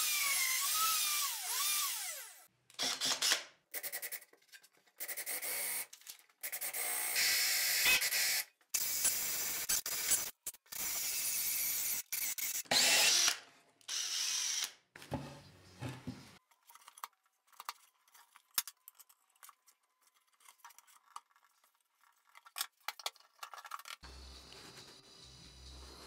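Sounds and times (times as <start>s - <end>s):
power drill boring into plywood: 0.0s - 3.4s.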